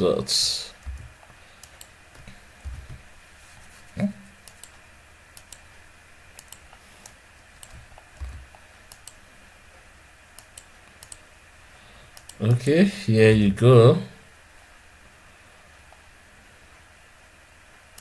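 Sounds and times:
soft low thumps: 0.8 - 1.2, 2.2 - 3.1
keyboard keystroke clicks: 6.4 - 9.2.

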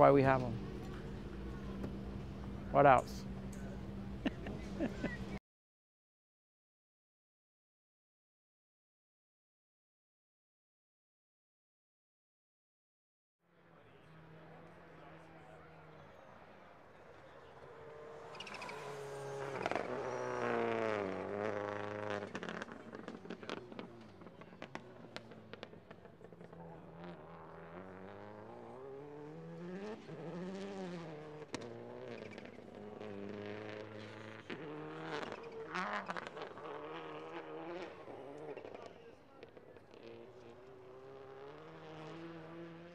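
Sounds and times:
rally car engine revving: 13.5 - 42.9
exhaust cracks and pops: 22.1 - 26.6.

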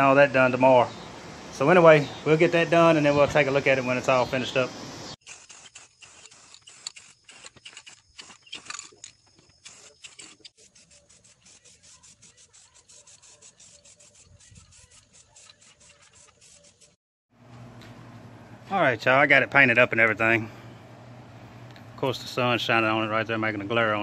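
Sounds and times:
spray paint can hissing bursts: 5.2 - 8.7, 9.6 - 17.0.

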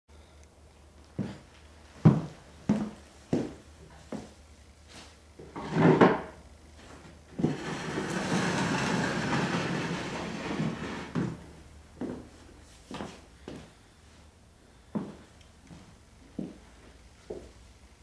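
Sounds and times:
rustling and scraping: 6.8 - 11.4.

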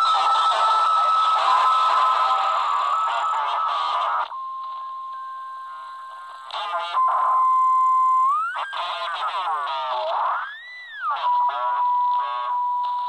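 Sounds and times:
distorted radio voice: 0.0 - 4.3, 6.5 - 7.4, 8.5 - 10.4, 11.2 - 12.6.

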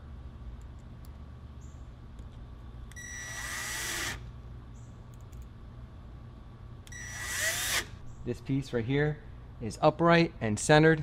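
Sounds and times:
cordless drill whining: 2.9 - 4.2, 6.9 - 8.0.

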